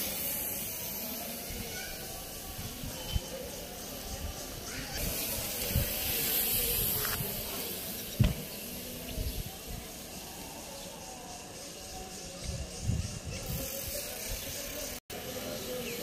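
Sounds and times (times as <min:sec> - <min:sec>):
wind on microphone: 0:04.0 - 0:09.9, 0:12.3 - 0:14.8.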